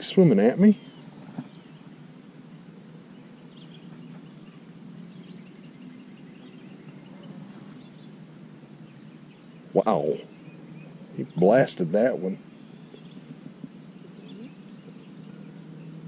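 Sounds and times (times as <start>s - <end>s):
low background noise: 0.0s - 16.0s
faint high chirps: 8.9s - 16.0s.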